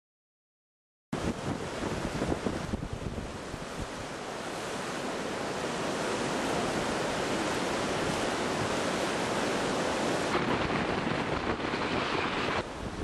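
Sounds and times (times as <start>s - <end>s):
wind noise on microphone: 1.2s - 4.2s, 10.0s - 13.0s
whitewater rushing: 1.2s - 13.0s.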